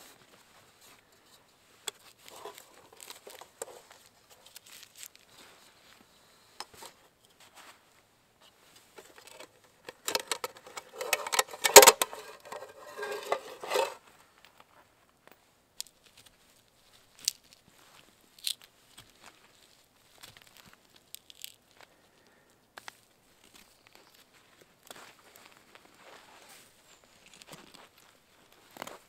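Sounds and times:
metallic clank: 9.0s - 14.0s
saw blade scraping metal pot: 9.0s - 14.0s.

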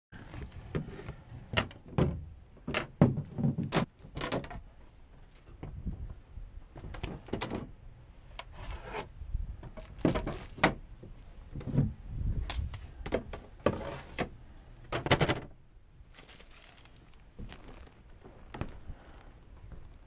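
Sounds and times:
wooden boards knocking and clattering: 1.5s - 4.6s, 9.6s - 10.8s, 14.9s - 15.5s.

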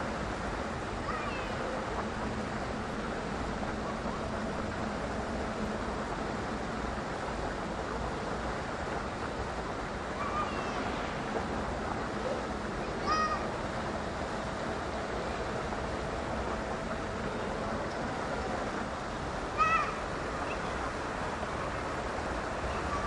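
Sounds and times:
outdoor background noise: 0.0s - 23.0s.

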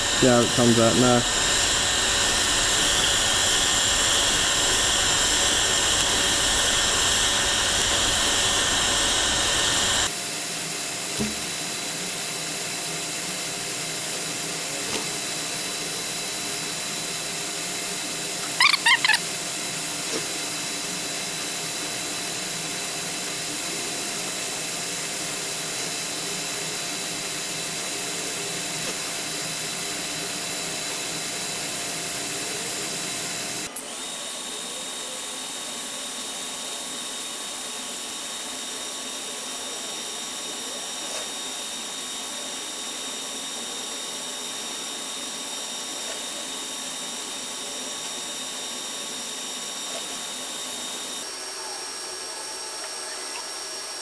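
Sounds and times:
welding arc hiss and whine: 0.0s - 54.0s
brief high squeak: 18.4s - 19.2s.

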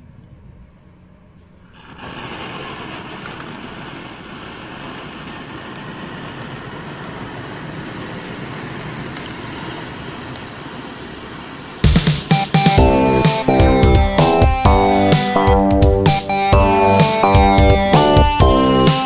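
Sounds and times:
sparkler hissing: 1.7s - 13.5s.

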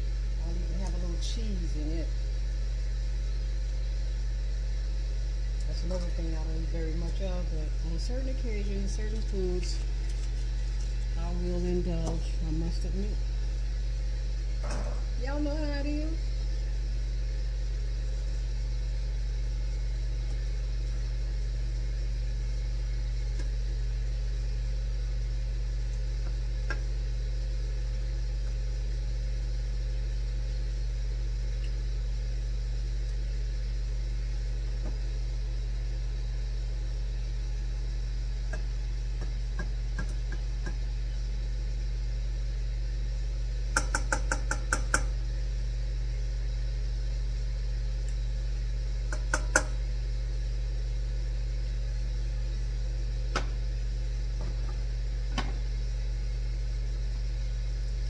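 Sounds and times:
kitchen appliance humming: 0.0s - 58.0s.

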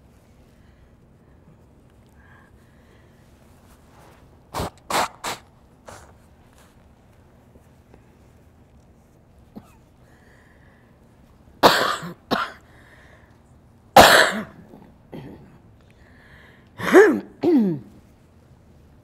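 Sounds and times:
elderly woman coughing: 9.5s - 9.9s, 11.6s - 12.6s, 14.0s - 15.6s, 16.8s - 18.0s.

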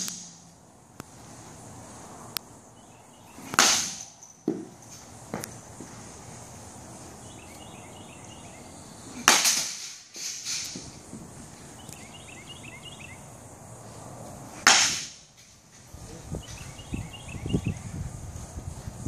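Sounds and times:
baseball bat cracking a ball: 0.0s - 0.4s, 3.3s - 5.6s, 9.1s - 11.0s, 14.5s - 15.3s.

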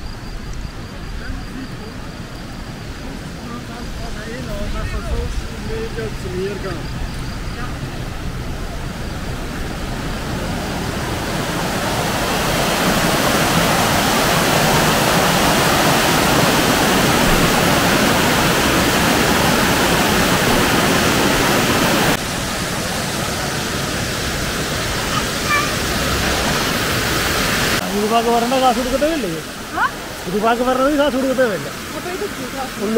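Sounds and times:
waterfall rushing: 1.4s - 32.9s.

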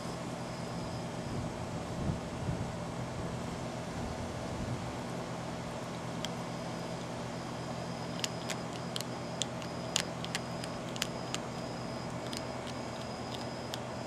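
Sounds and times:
steady low hum: 0.0s - 14.0s
animal crunching dry food: 8.0s - 14.0s.

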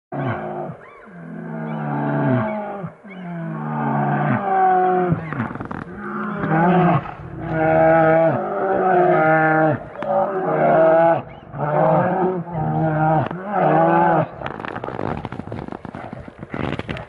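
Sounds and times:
bears roaring and growling: 0.1s - 17.0s
crackling scuffling noise: 5.1s - 10.4s, 13.1s - 17.0s.

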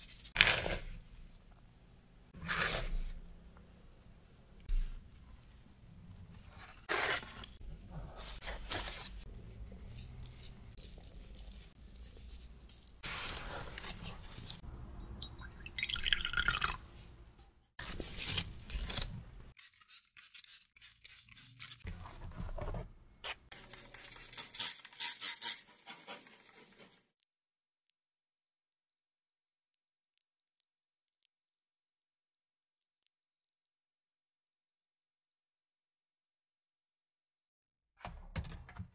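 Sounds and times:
water dripping into ramekin: 15.0s - 16.8s
scraper scraping dough on board: 23.5s - 27.0s.

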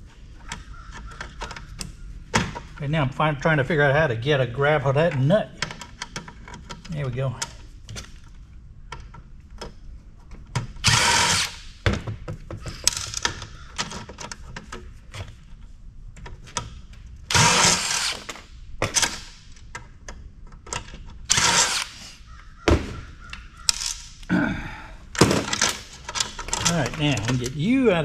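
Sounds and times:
impact driver bursts: 10.8s - 11.6s, 17.3s - 18.3s, 21.3s - 22.2s.

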